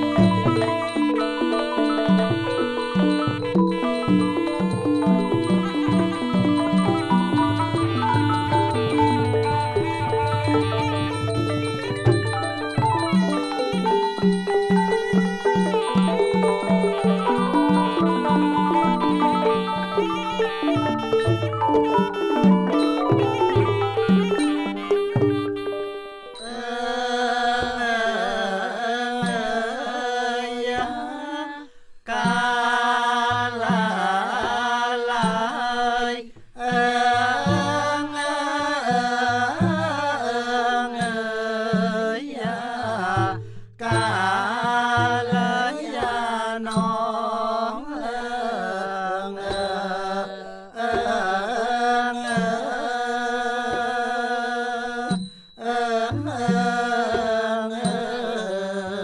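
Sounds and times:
melodic instruments: 0.0 - 26.4
wavering chanted melody: 0.0 - 59.0.

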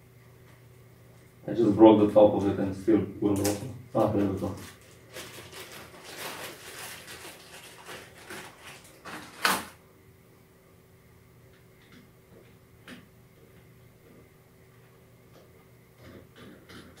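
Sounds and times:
plastic bag crinkling: 3.9 - 9.8.

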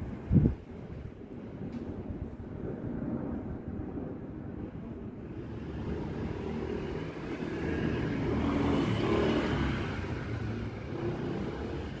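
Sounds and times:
vehicle passing by: 5.2 - 12.0.

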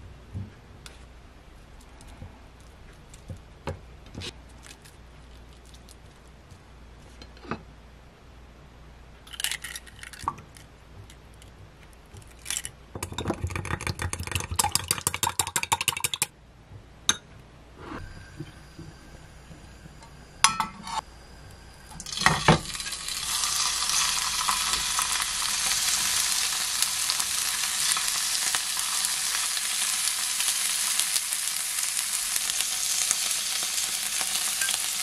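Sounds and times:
egg cracking: 9.3 - 16.3.

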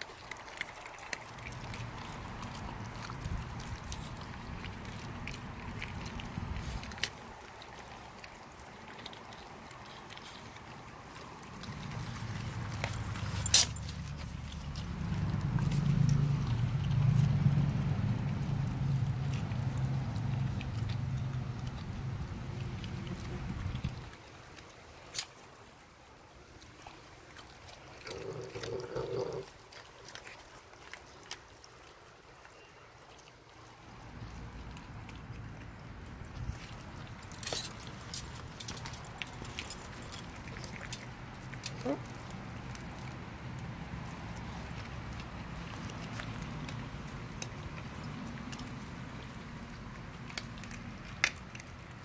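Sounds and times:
puppy gnawing: 0.0 - 52.0
teeth clicking on bone: 45.2 - 52.0.

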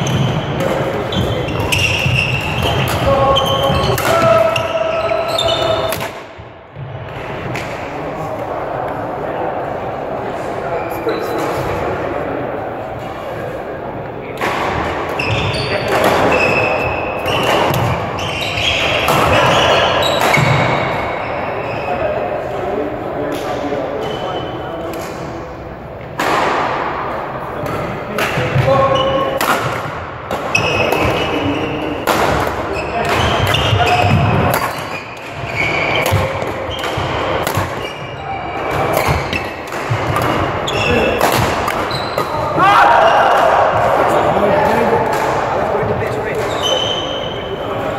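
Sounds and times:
shoes squeaking on hall floor: 0.0 - 6.0, 10.7 - 11.6, 15.1 - 22.4, 23.2 - 24.9, 27.8 - 29.8, 30.4 - 43.2, 45.7 - 47.9
rackets striking shuttlecock: 32.0 - 38.0, 38.6 - 42.6.

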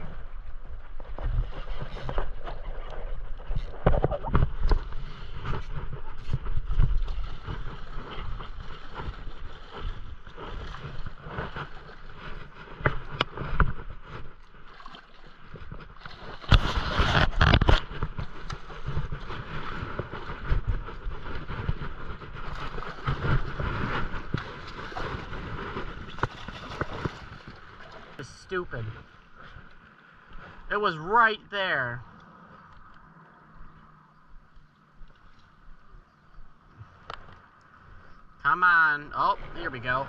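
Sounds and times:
wind buffeting microphone: 0.0 - 29.6.

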